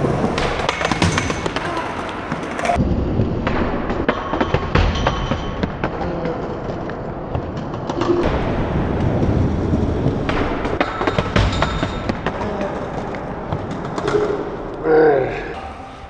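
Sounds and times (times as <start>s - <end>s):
skateboard clacks and knocks: 0.0s - 2.8s
skateboard wheels rumbling on concrete: 0.0s - 4.6s, 5.7s - 14.8s.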